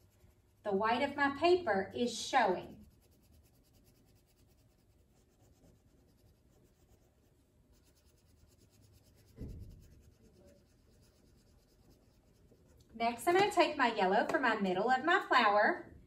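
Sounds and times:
crayon rubbing on paper: 0:02.6 - 0:12.8
soft low thump: 0:09.2 - 0:10.0.

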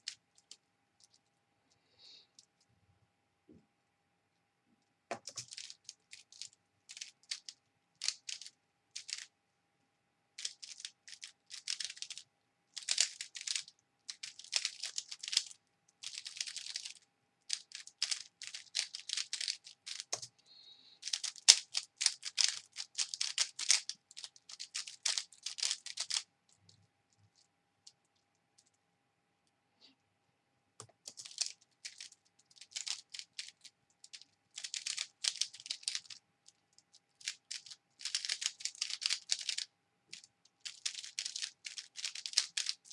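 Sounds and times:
speed cube clicking: 0:05.1 - 0:09.3, 0:10.4 - 0:20.4, 0:21.0 - 0:26.3, 0:30.8 - 0:42.9.

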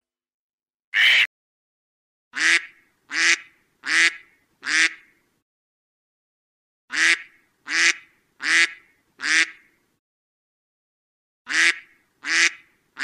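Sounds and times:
duck quacking: 0:01.0 - 0:01.3, 0:02.4 - 0:05.1, 0:06.9 - 0:09.7, 0:11.5 - 0:13.0.

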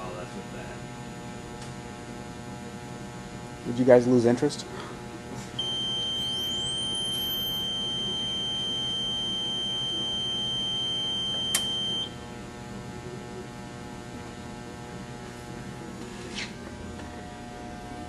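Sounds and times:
low electrical hum: 0:00.0 - 0:18.0
high-pitched electronic buzzer tone: 0:05.6 - 0:12.2.

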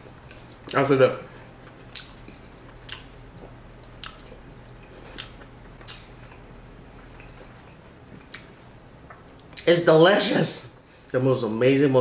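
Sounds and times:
faint steady hum: 0:00.0 - 0:12.0
person chewing crispy food: 0:01.4 - 0:08.5.

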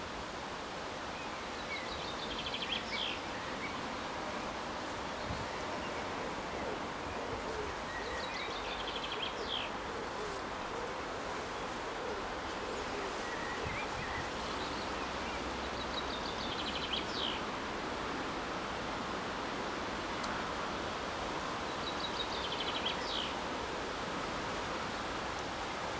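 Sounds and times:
leaves rustling in breeze: 0:00.0 - 0:25.9
songbird singing: 0:01.0 - 0:17.5, 0:21.4 - 0:23.5.

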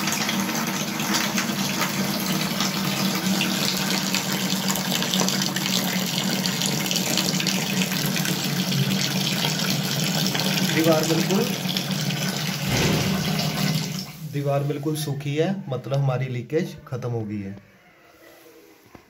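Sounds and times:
water running from tap: 0:00.0 - 0:14.8.

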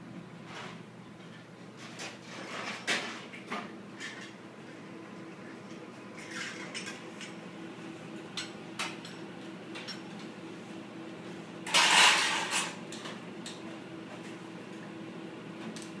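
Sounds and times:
dishes and utensils clinking: 0:11.7 - 0:12.8.

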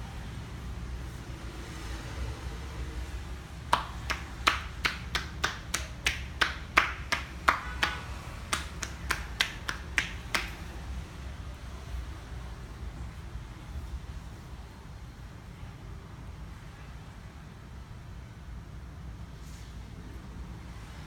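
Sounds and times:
hands clapping against thigh: 0:03.7 - 0:10.7.

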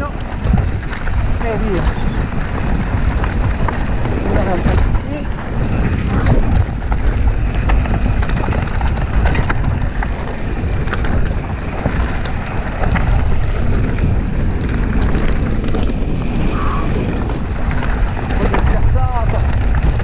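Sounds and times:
bike clicks and rattles: 0:00.0 - 0:20.0
tyres rolling over dirt: 0:00.0 - 0:20.0
wind buffeting microphone: 0:00.0 - 0:20.0.

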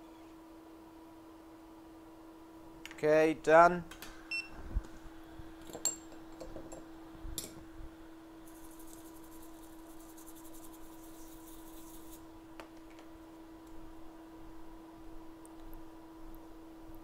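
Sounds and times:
steady hum: 0:00.0 - 0:17.0
fine rapid scratching: 0:08.4 - 0:12.2.

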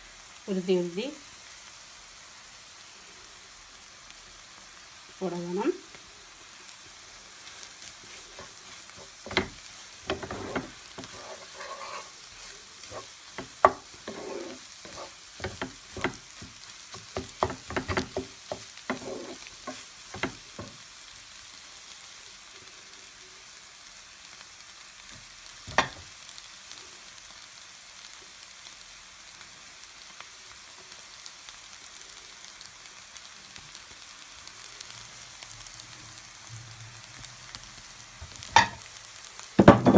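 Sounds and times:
noodles sizzling in a pan: 0:00.0 - 0:39.9
wooden spatula knocking on pan: 0:09.2 - 0:11.3, 0:13.4 - 0:20.8, 0:25.7 - 0:26.0, 0:38.6 - 0:38.8, 0:39.6 - 0:39.9.

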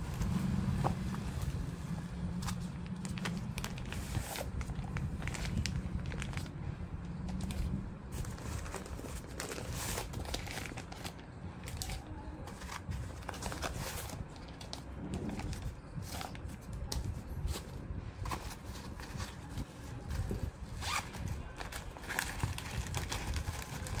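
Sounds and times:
wrapping paper crinkling: 0:02.6 - 0:06.6, 0:18.4 - 0:24.0.

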